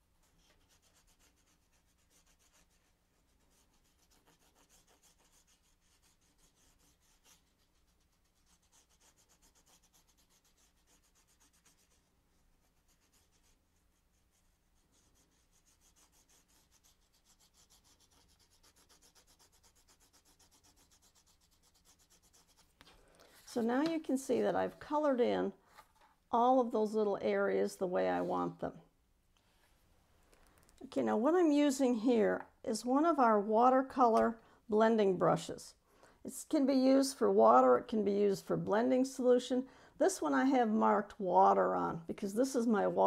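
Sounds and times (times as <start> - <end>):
pencil scratching on cardstock: 0.2 - 23.7.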